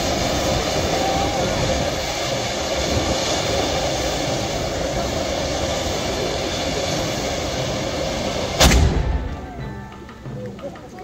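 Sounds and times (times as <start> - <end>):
firework rushing hiss: 0.0 - 9.7
firework sharp bang: 7.8 - 10.3.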